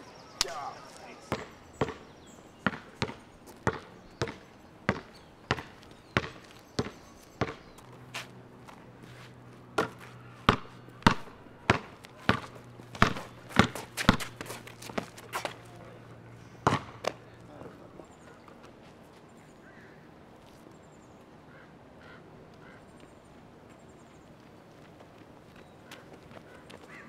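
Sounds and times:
basketball bouncing on concrete: 0:01.2 - 0:07.9, 0:09.8 - 0:15.6, 0:16.6 - 0:17.2.

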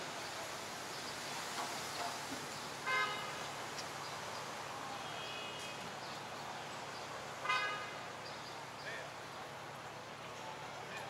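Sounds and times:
city street traffic: 0:00.0 - 0:11.0
car horn toot: 0:02.9 - 0:03.3, 0:07.4 - 0:08.0.

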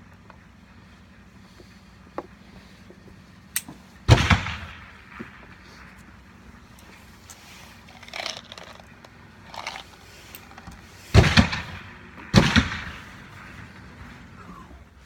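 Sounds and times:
revolver handling clicks: 0:03.5 - 0:03.8
loud gunshots with echo: 0:04.1 - 0:05.2, 0:11.1 - 0:14.1.

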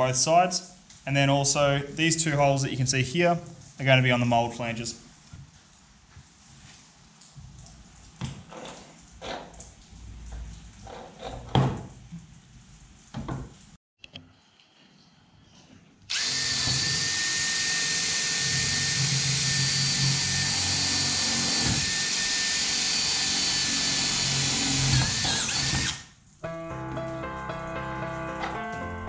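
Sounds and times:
cordless drill whining: 0:16.1 - 0:26.1.

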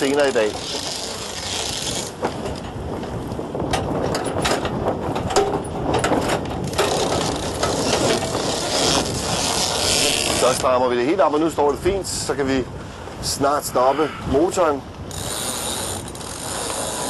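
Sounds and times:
winch ratchet clicking: 0:15.1 - 0:17.0.

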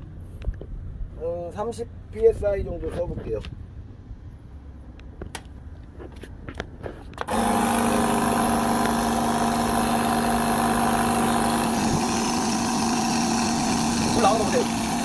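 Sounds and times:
air compressor motor running: 0:07.3 - 0:15.0.

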